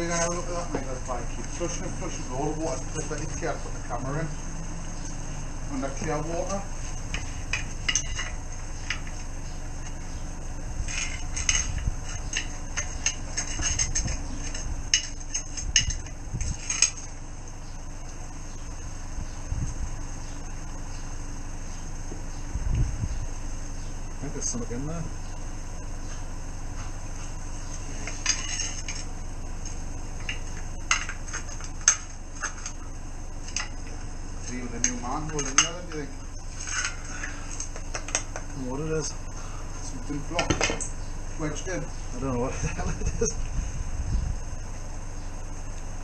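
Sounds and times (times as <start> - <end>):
low hum: 0.0 - 46.0
low steady rumble: 0.0 - 46.0
tools and metal fittings clinking: 6.4 - 9.2, 34.4 - 37.0.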